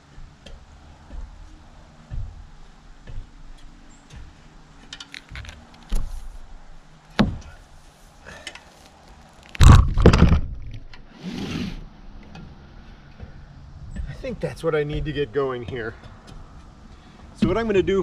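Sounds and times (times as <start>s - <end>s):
heavy roll knocking and thudding: 9.6s - 10.9s, 17.4s - 18.0s.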